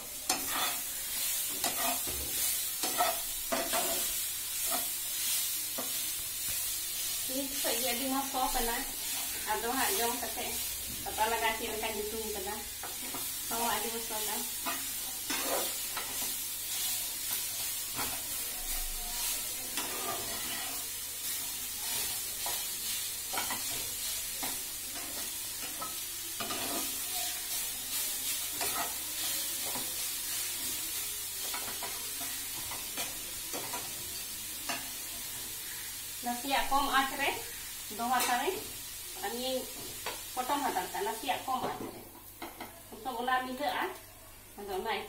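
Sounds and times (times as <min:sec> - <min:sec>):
leaves sizzling in a pan: 0:00.0 - 0:45.0
spatula scraping and tapping pan: 0:00.2 - 0:07.1, 0:12.8 - 0:13.4, 0:14.5 - 0:16.4, 0:17.2 - 0:20.9, 0:23.3 - 0:27.0, 0:28.3 - 0:30.4, 0:31.4 - 0:35.8.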